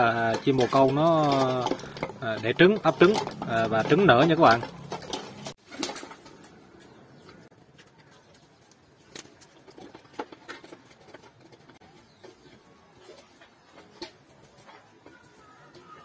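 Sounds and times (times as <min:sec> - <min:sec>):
pigeons cooing: 0:10.5 - 0:16.0.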